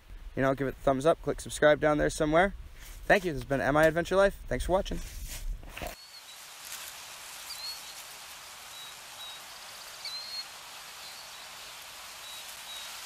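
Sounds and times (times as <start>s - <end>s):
steady hiss: 4.9s - 13.0s
high bird chirps: 6.0s - 6.4s, 7.4s - 13.0s.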